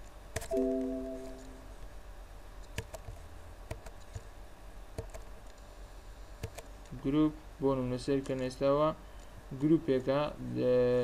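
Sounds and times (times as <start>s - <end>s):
computer alert chime: 0.5s - 1.8s.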